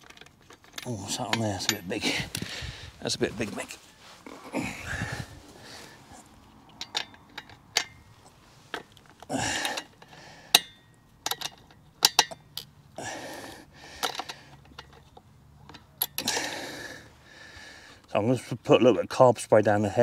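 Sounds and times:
hand tools clicking and clinking: 0.0s - 2.6s, 5.7s - 17.0s.

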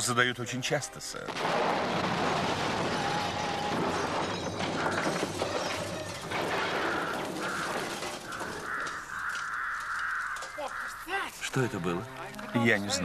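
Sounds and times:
debris crashing and clattering: 1.3s - 10.9s
crows cawing: 4.3s - 12.6s.

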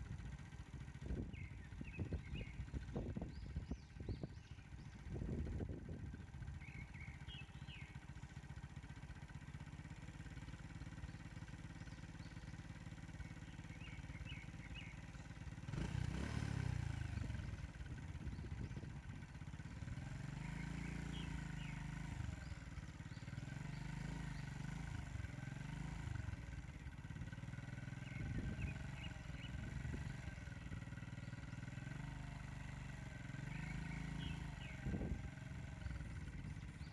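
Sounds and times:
bird chirping: 1.0s - 5.6s, 6.4s - 8.6s, 10.4s - 16.3s, 17.0s - 24.8s, 27.9s - 32.2s, 33.2s - 36.9s.

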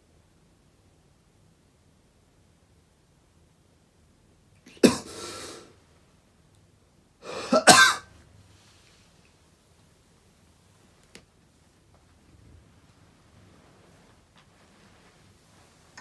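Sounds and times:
person coughing: 4.7s - 5.7s, 7.3s - 8.1s.

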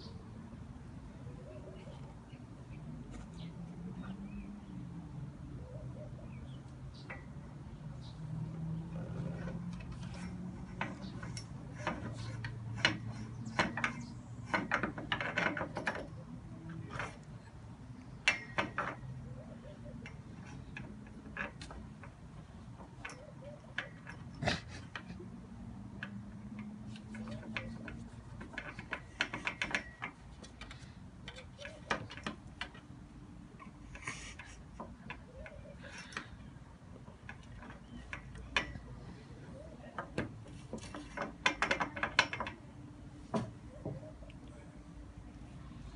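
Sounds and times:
cat claws clicking and scratching: 6.7s - 39.1s, 40.0s - 42.8s.

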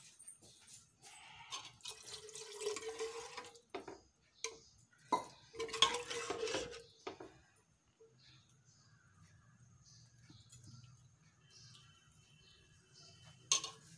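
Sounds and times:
ladle scraping and knocking pot: 1.5s - 7.4s, 13.2s - 13.9s
ladle stirring thick curry: 5.3s - 7.4s.

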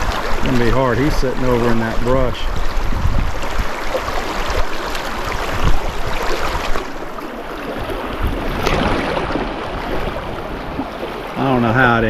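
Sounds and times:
river water rippling: 0.0s - 12.0s.

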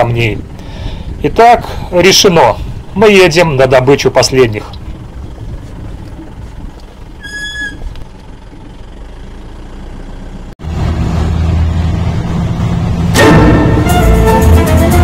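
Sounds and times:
low steady hum: 0.0s - 10.5s
jeep engine rumbling: 0.0s - 15.0s
high whistle-like tone: 7.2s - 7.9s.

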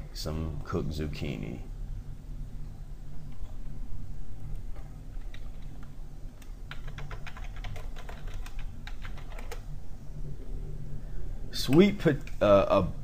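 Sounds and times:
low steady hum: 0.0s - 13.0s
keyboard typing: 5.1s - 9.7s.

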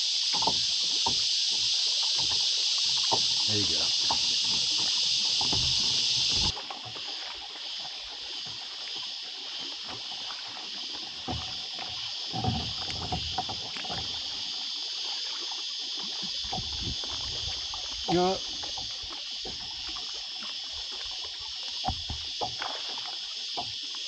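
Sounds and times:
cicadas droning: 0.0s - 24.0s
water lapping at kayak hull: 0.0s - 24.0s
knocks and rustles from kayak: 0.2s - 14.7s, 16.1s - 24.0s.

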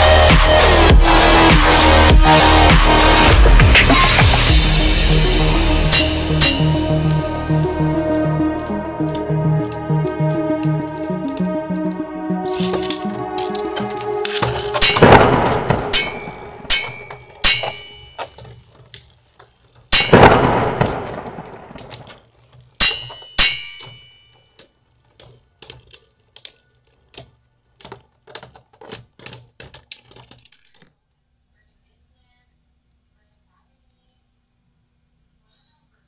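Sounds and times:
spinning tops clanging: 0.0s - 19.2s, 19.8s - 22.2s, 22.8s - 24.6s
spinning tops scraping: 0.0s - 24.1s.

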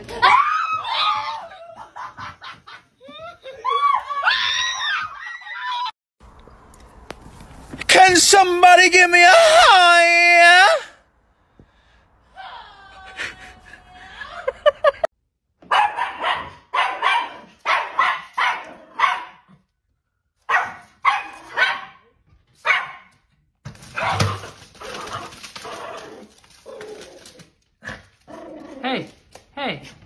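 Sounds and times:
small dog barking: 15.7s - 19.5s, 20.5s - 22.0s, 22.6s - 23.1s.

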